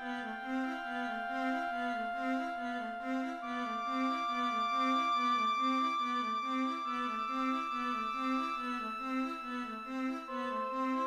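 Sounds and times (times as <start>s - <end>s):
flute and oboe long notes: 0.0s - 11.0s
viola and cello repeated notes: 0.0s - 11.0s.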